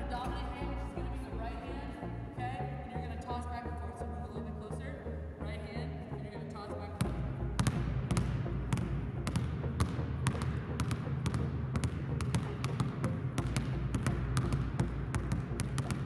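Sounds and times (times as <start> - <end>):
basketballs bouncing on hardwood floor: 7.0 - 16.0.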